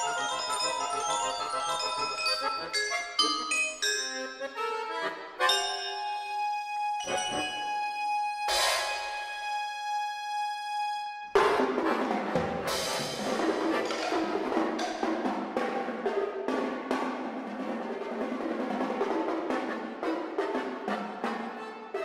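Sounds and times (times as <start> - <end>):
percussion strikes: 0.0 - 6.4, 7.0 - 7.9, 8.5 - 9.3, 11.4 - 17.7
accordion chords: 0.0 - 17.4, 18.9 - 22.0.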